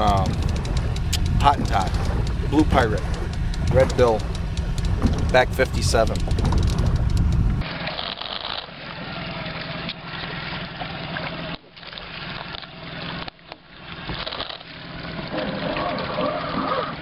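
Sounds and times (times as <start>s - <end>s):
water splashing along boat hull: 0.0s - 17.0s.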